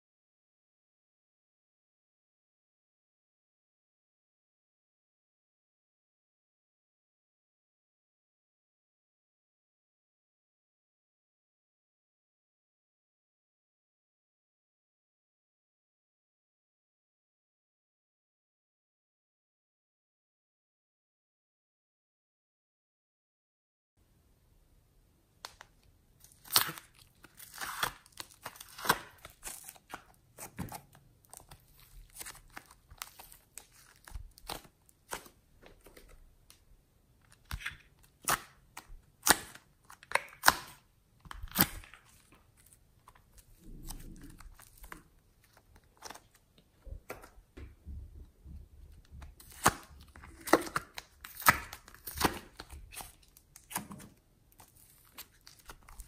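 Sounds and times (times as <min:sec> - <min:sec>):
foam clay tearing and crinkling: 0:26.2 - 0:35.4, 0:37.4 - 0:46.6, 0:49.4 - 0:56.0.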